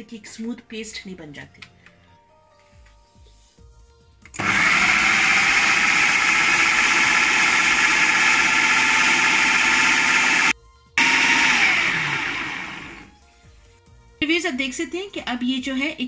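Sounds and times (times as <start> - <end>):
food processor motor running: 4.3 - 13.1.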